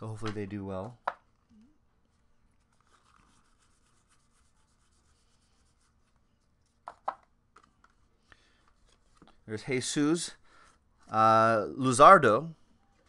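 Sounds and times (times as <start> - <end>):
paper cards rustling: 2.1 - 9.4.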